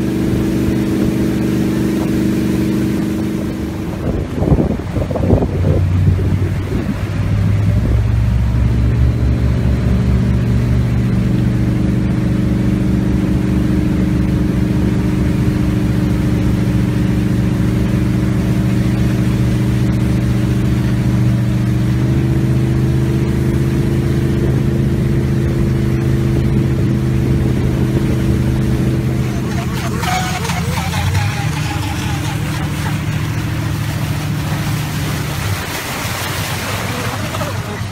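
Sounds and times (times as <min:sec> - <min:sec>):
boat engine humming: 0:00.0 - 0:37.9.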